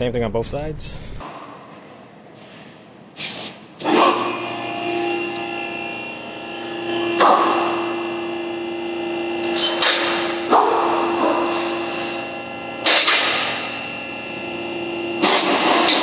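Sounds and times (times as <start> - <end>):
hydraulic pump motor humming: 3.8 - 16.0.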